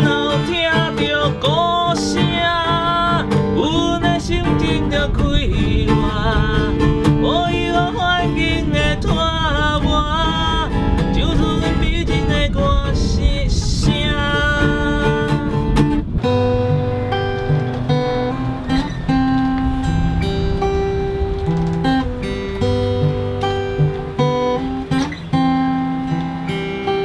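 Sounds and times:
man singing: 0:00.0 - 0:15.8
acoustic guitar chords: 0:00.0 - 0:27.0.

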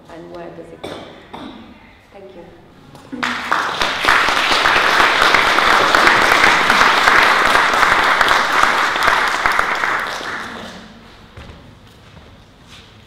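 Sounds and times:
audience applauding: 0:03.2 - 0:11.1.

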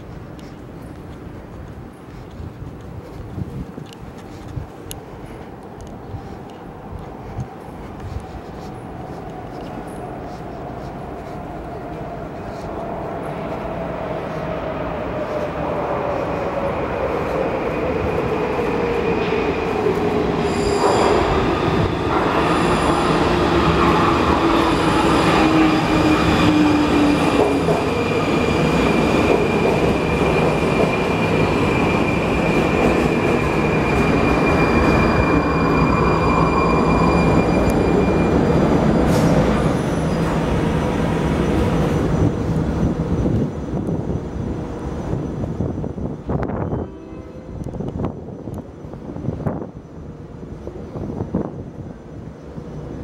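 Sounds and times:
high brake squeal: 0:20.3 - 0:23.4, 0:30.9 - 0:40.4.

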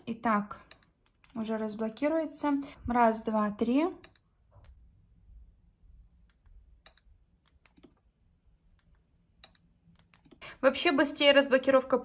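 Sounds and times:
faint clicks and taps of phones: 0:00.5 - 0:01.4, 0:06.2 - 0:08.1, 0:08.7 - 0:10.5.

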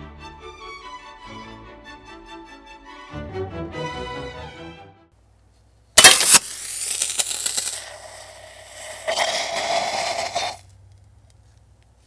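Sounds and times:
sharp metallic crack: 0:06.0 - 0:10.6
sparking hiss: 0:06.0 - 0:10.7.

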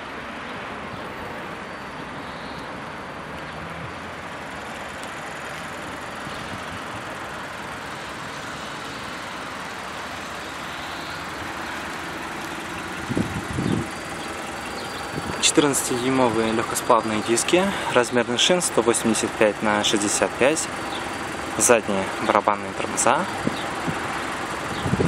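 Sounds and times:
outdoor background rush: 0:00.0 - 0:25.0.

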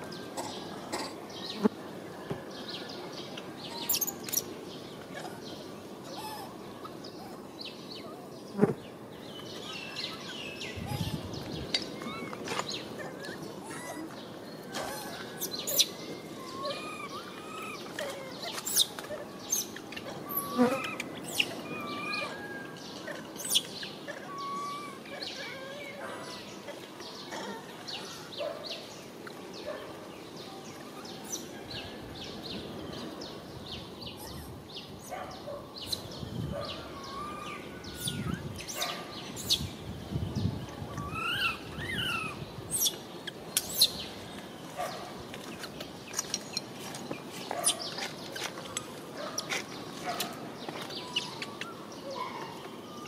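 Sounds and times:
steady background hiss: 0:00.0 - 0:53.0.

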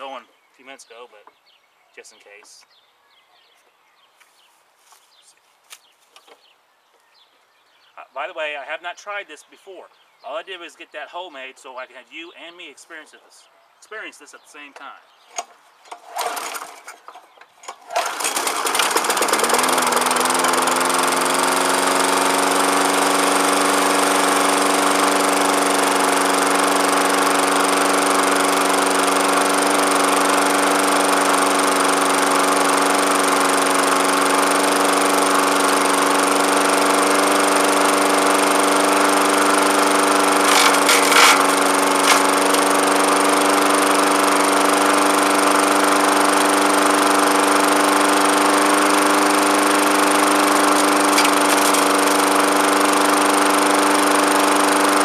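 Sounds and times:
lawn mower engine running: 0:15.3 - 0:55.0
blade hitting stick sharp cracks: 0:40.5 - 0:42.2.

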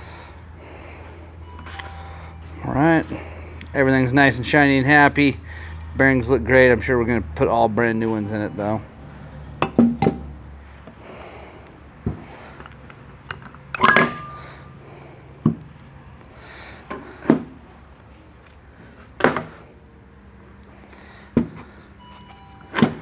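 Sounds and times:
metal parts clunking on bench: 0:13.3 - 0:14.4.

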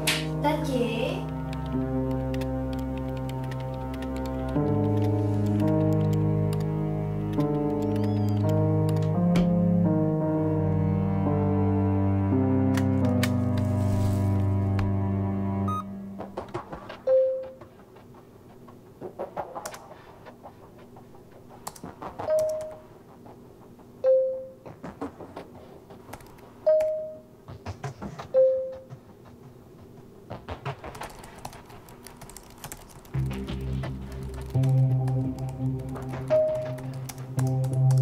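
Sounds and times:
laptop keyboard typing: 0:01.2 - 0:09.5, 0:21.6 - 0:22.9, 0:26.0 - 0:27.1, 0:30.5 - 0:38.0
chat notification tones: 0:15.7 - 0:15.9.

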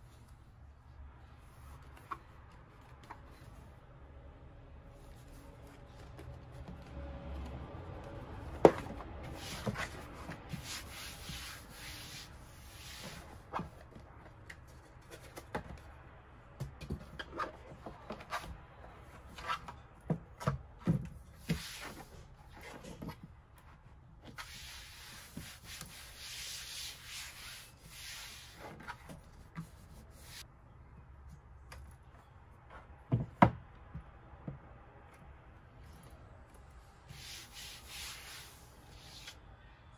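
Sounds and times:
mat rubbing and sliding on desk: 0:08.6 - 0:13.7, 0:21.4 - 0:23.2, 0:24.3 - 0:30.4, 0:37.1 - 0:39.4.

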